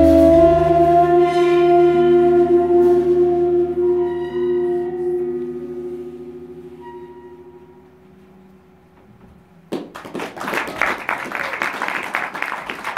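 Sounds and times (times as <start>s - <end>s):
audience applause: 9.7s - 12.9s.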